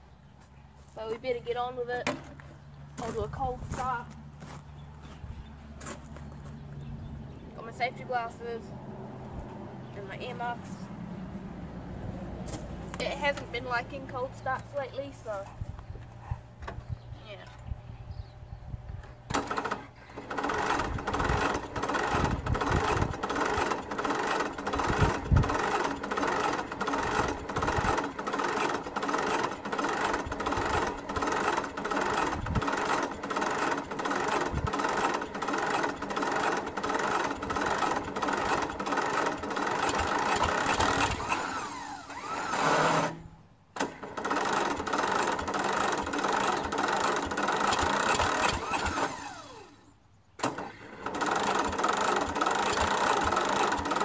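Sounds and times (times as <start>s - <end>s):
engine cranking with electric starter: 19.0s - 54.0s.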